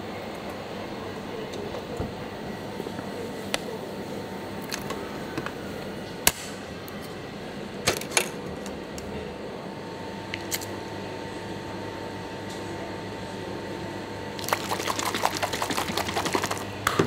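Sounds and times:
machine hum: 14.1 - 17.0.

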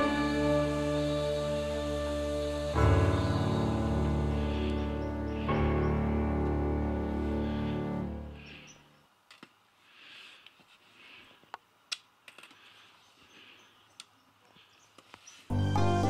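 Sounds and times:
trekking pole tips clicking on rock: 11.5 - 12.7.

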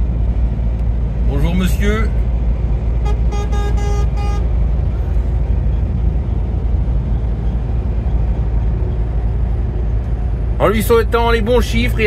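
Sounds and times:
truck cab drone: 0.0 - 12.0
vehicle horn short beeps: 3.0 - 4.5.

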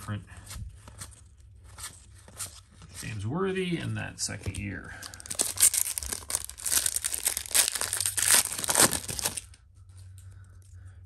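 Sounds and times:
foil wrapper crinkling and tearing: 5.0 - 9.6.

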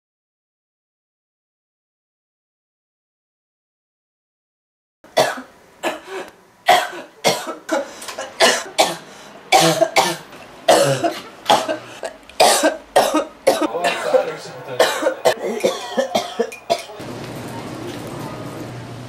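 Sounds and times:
person coughing: 5.2 - 17.0.

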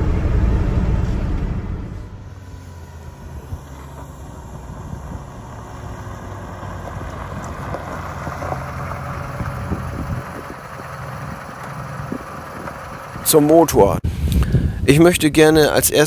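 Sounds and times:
car engine running at low speed: 0.0 - 14.0
tyres crackling on gravel: 2.4 - 13.8.

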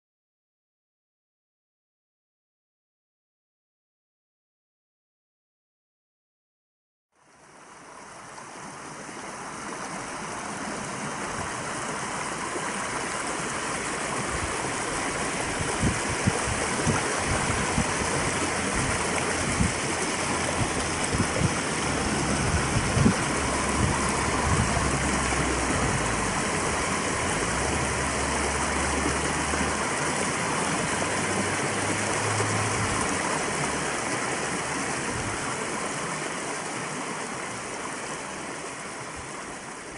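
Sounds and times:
stream water rushing: 7.2 - 39.9
low thumps and rumbles: 15.5 - 30.1.

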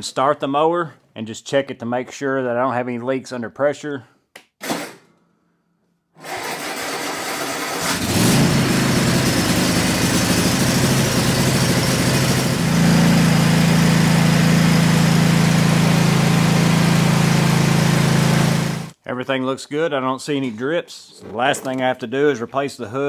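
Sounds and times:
engine cranking and starting: 6.2 - 12.6.

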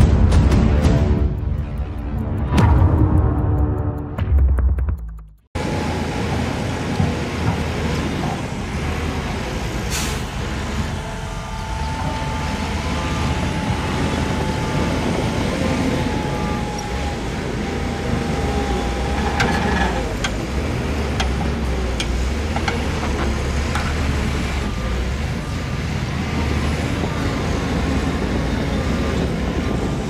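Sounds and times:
diesel machinery rumble and whine: 5.6 - 30.0
short hiss: 9.9 - 10.3.

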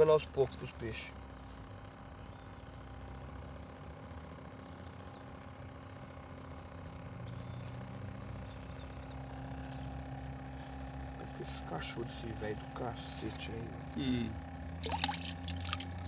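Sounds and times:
cricket trilling: 0.0 - 16.0
air pump hum: 8.5 - 16.0.

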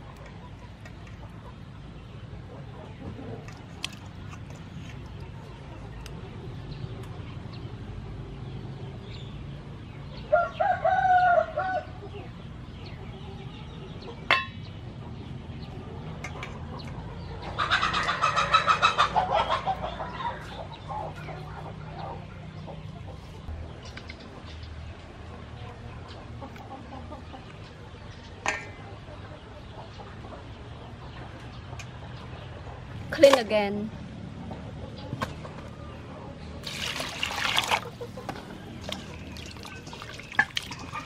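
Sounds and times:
rooster crowing: 10.3 - 12.0
rapidly pulsing chicken call: 17.4 - 22.3.

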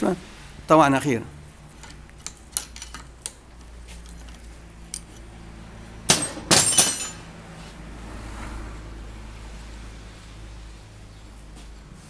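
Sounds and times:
metal parts clanking: 1.7 - 3.4, 6.1 - 7.3.

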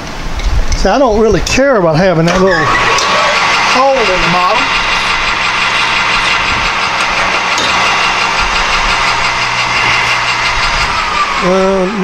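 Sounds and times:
metal lathe humming: 2.2 - 12.0
lathe hiss: 2.6 - 12.0.

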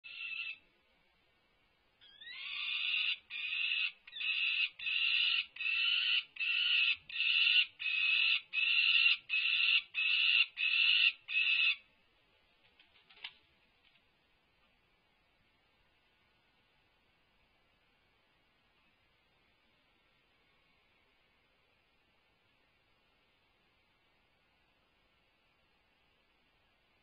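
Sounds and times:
falcon harsh calls: 2.0 - 11.8.

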